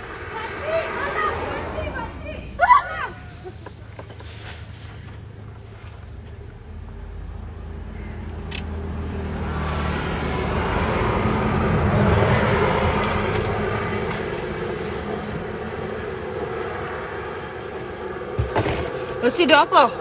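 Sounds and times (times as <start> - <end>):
vehicle passing on road: 0.0 - 20.0.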